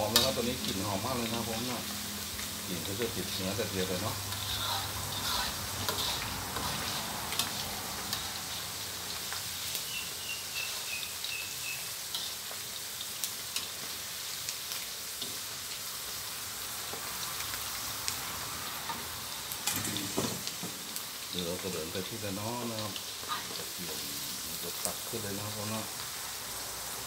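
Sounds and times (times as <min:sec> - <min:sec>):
meat sizzling in hot oil: 0:00.0 - 0:27.0
faint high chirps: 0:09.8 - 0:12.0.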